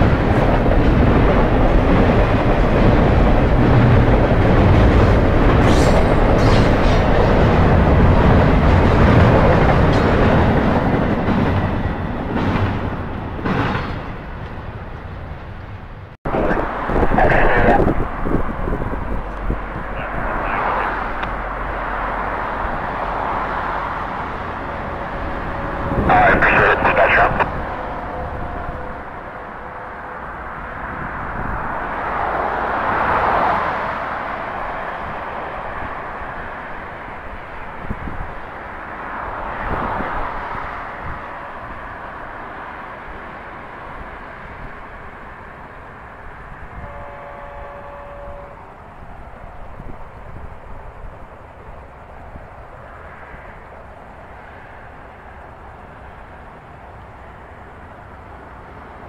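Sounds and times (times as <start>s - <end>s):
distant diesel locomotive rumble: 0.0s - 59.0s
train horn: 46.7s - 48.7s.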